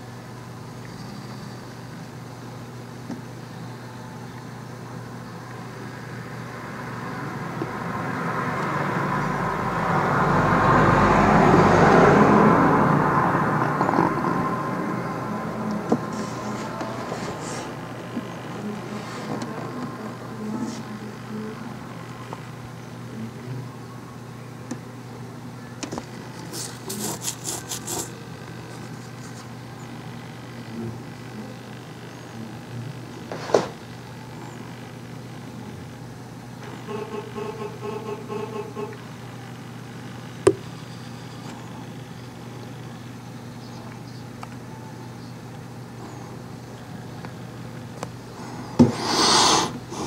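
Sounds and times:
steady low hum: 0:00.0 - 0:50.0
vehicle passing with deep rumble: 0:05.7 - 0:22.8
dry rasping scratches: 0:16.1 - 0:17.8, 0:26.4 - 0:28.2.

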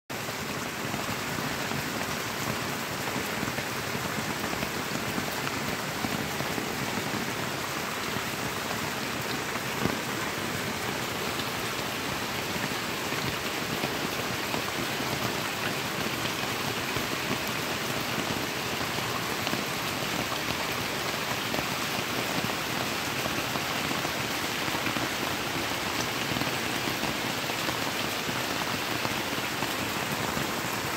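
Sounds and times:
rain on puddles: 0:00.1 - 0:30.9.

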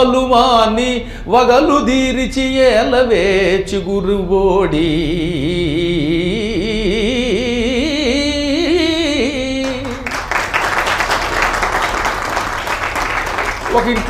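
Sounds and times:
audience applauding: 0:09.6 - 0:14.0.

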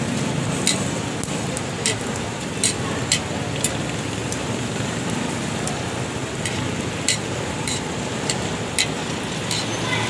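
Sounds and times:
flatbread sizzling on griddle: 0:00.0 - 0:10.0
metal tongs clicking: 0:00.7 - 0:00.9, 0:01.8 - 0:03.8, 0:06.4 - 0:09.7.

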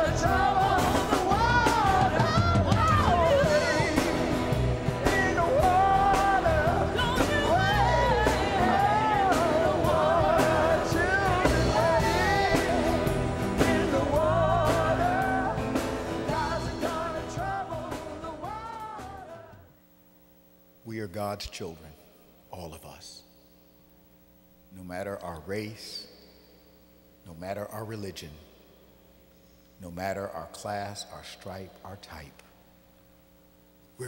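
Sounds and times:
song with instrumental accompaniment: 0:00.0 - 0:19.7.

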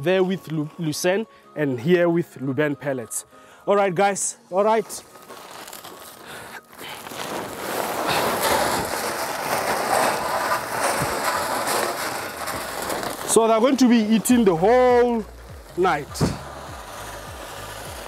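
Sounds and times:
pellets rattling into plastic drum: 0:06.9 - 0:17.9.

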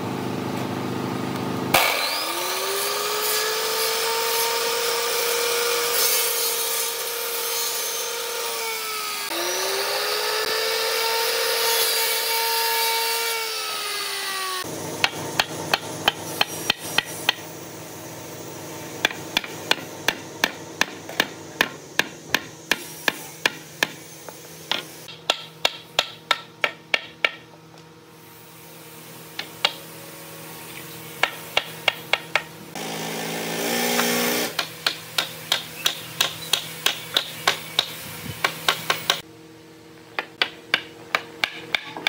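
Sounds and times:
loud whirring noise: 0:08.2 - 0:25.2.

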